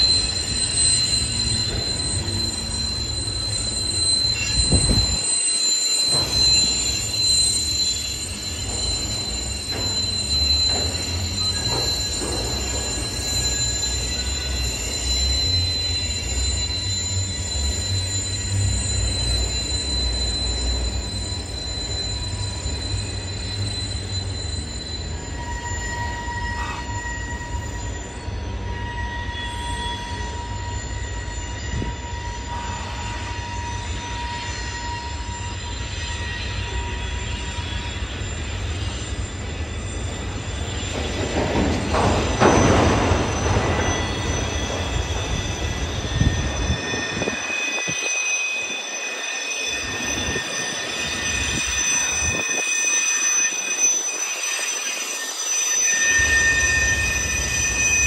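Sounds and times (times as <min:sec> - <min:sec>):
steel wheels squealing: 0:00.0 - 0:58.0
freight train rumbling past: 0:36.2 - 0:52.7.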